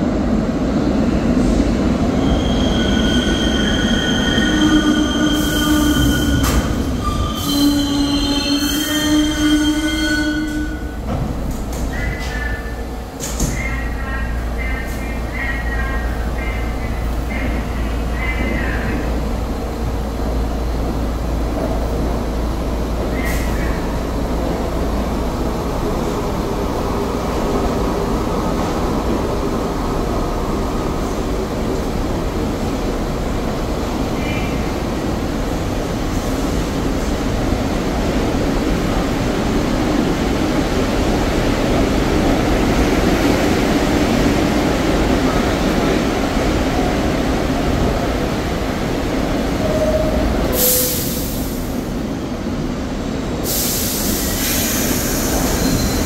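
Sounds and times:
subway train motors humming: 0:00.0 - 0:56.0
train doors closing with hiss: 0:10.4 - 0:13.8, 0:23.0 - 0:23.9, 0:50.4 - 0:51.9, 0:53.4 - 0:56.0.

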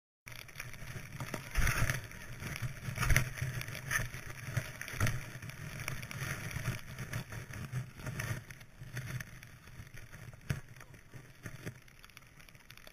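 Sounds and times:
wind rumbling on microphone: 0:00.4 - 0:11.9
skis hissing through snow: 0:00.5 - 0:09.7.

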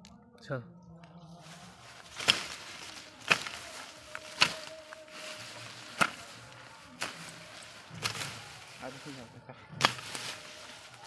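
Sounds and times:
hand tool chopping into soil: 0:02.1 - 0:08.7, 0:09.8 - 0:10.9.

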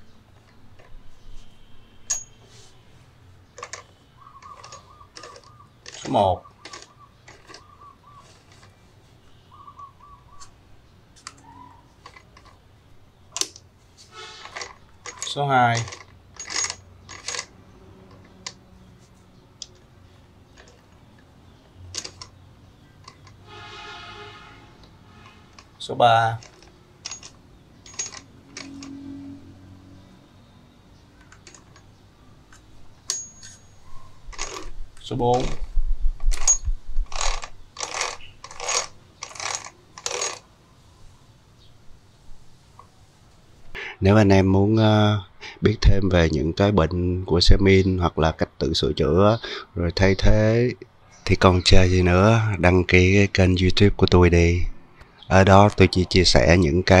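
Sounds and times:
metallic gearbox clicks: 0:03.6 - 0:07.7, 0:14.5 - 0:17.5, 0:22.0 - 0:22.4, 0:26.3 - 0:29.0, 0:33.0 - 0:33.6, 0:34.3 - 0:40.4.

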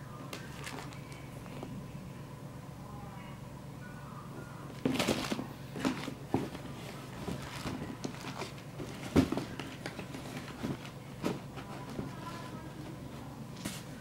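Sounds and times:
plastic bags rustling: 0:00.4 - 0:01.2, 0:04.8 - 0:12.8.

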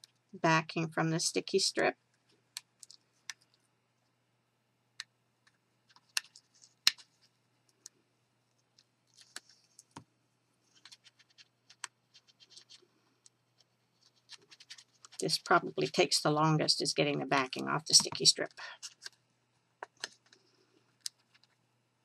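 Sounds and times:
paper scratching: 0:10.7 - 0:12.8, 0:14.0 - 0:15.3.

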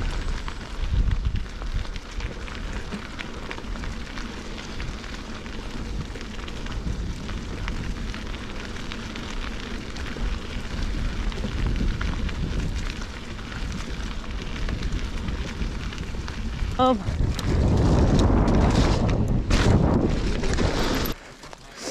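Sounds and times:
bike tyres crackling over leaves: 0:00.0 - 0:21.9.

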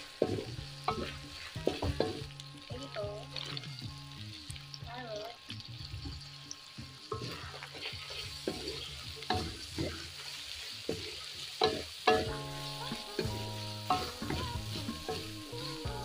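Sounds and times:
spatula scraping a wok: 0:00.0 - 0:02.7, 0:07.0 - 0:16.0
food sizzling: 0:00.0 - 0:16.0.

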